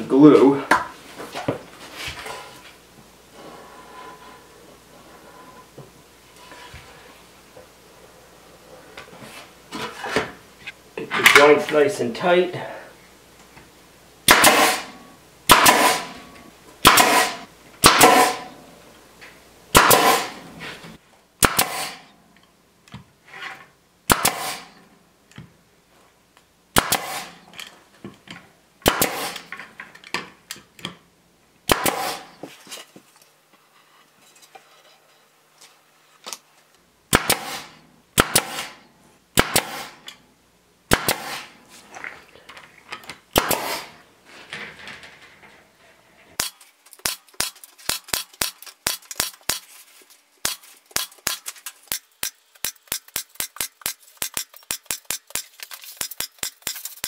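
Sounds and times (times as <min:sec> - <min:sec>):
pneumatic stapler firing: 0:14.3 - 0:14.9, 0:15.5 - 0:16.2, 0:16.8 - 0:18.4, 0:19.7 - 0:20.4, 0:21.4 - 0:22.0, 0:24.1 - 0:24.7, 0:26.8 - 0:27.4, 0:28.8 - 0:29.5, 0:31.7 - 0:32.3, 0:37.1 - 0:38.8, 0:39.4 - 0:40.0, 0:40.9 - 0:41.5, 0:43.3 - 0:43.9, 0:46.4 - 0:49.7.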